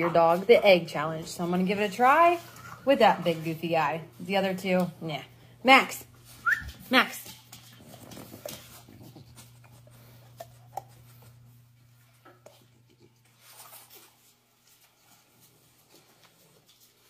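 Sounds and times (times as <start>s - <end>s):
low steady hum: 0.0s - 17.0s
faint rustling and scraping: 7.3s - 17.0s.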